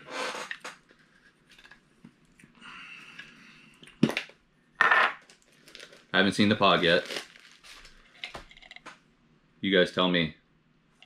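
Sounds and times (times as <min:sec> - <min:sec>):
packaging rustling: 0:05.3 - 0:08.9.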